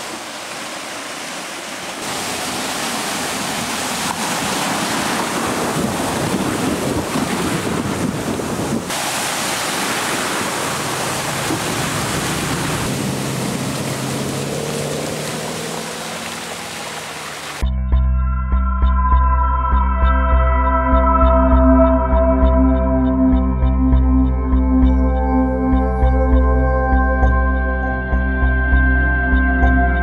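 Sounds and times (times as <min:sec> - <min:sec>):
vehicle splashing through water: 0:00.0 - 0:17.6.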